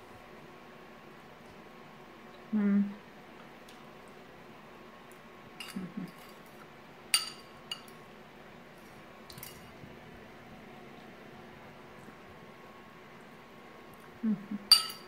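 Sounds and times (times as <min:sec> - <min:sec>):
fork clinking against ceramic bowl: 0:05.6 - 0:06.3, 0:07.2 - 0:08.0, 0:14.7 - 0:15.0.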